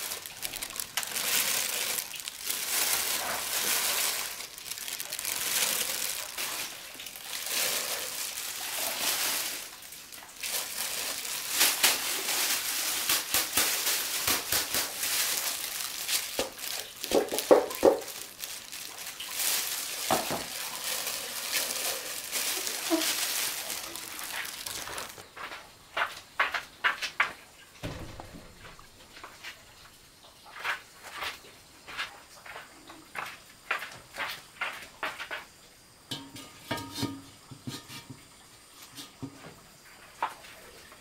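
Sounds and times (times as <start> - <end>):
plastic gloves crinkling: 0.0 - 25.5
rice grains shifting: 0.0 - 25.6.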